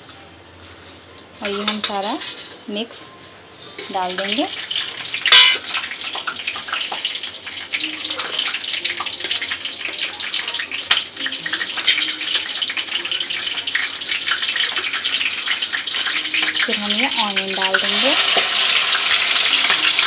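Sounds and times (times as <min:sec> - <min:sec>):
spices sizzling in hot oil: 0:01.2 - 0:02.9, 0:03.6 - 0:20.0.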